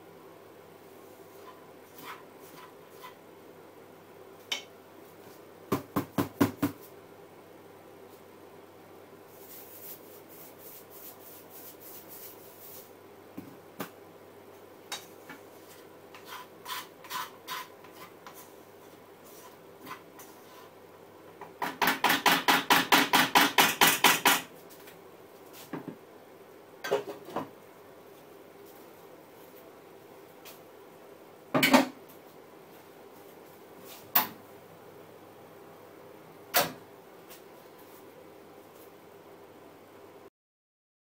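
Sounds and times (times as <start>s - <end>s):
utensil scraping a frying pan: 1.2s - 3.2s, 15.5s - 20.8s.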